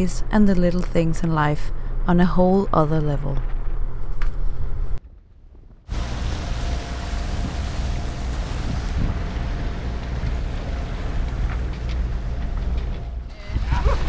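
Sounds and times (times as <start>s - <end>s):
wind buffeting microphone: 4.6s - 14.0s
sea rushing: 5.9s - 12.2s.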